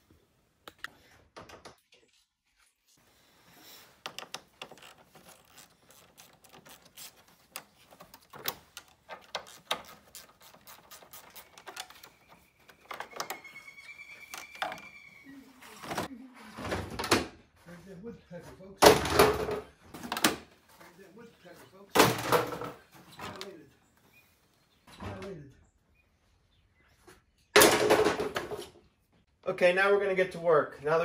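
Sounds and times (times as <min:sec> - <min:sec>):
hand tools clicking and clattering: 0:03.8 - 0:15.0
thin high squeak: 0:09.4 - 0:16.1.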